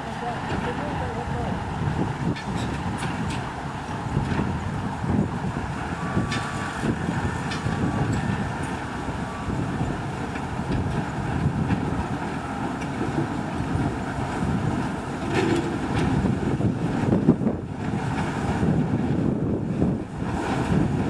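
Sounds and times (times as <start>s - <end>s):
diesel locomotive engine rumble: 0.0s - 21.0s.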